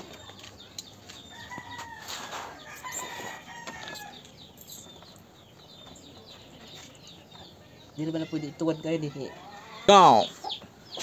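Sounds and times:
rooster crowing: 0:01.3 - 0:04.2.

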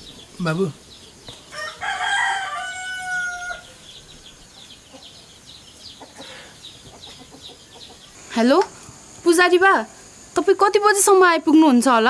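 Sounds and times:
small birds chirping: 0:00.0 - 0:12.0
rooster crowing: 0:01.4 - 0:04.3.

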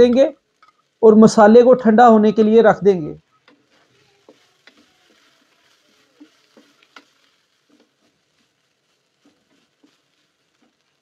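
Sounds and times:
spatula scraping and tapping wok: 0:00.0 - 0:01.0, 0:03.3 - 0:11.0
filling faintly sizzling: 0:00.0 - 0:11.0.

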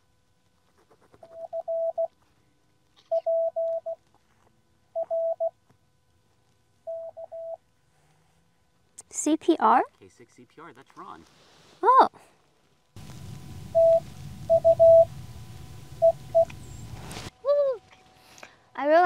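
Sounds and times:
morse code tone: 0:13.7 - 0:15.1, 0:16.0 - 0:16.8.

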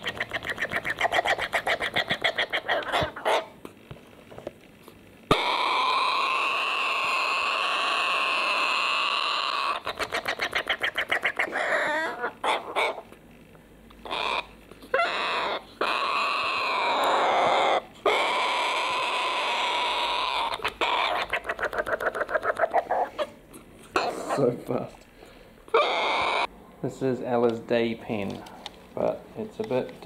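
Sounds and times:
corella rasping begging calls: 0:00.0 - 0:03.5, 0:05.3 - 0:13.1, 0:14.0 - 0:24.5, 0:25.7 - 0:26.5.

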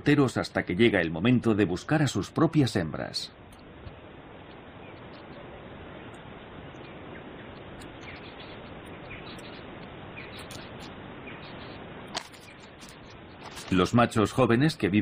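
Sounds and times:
outdoor ambience hiss: 0:00.0 - 0:15.0
faint bird chirps: 0:04.5 - 0:13.4.

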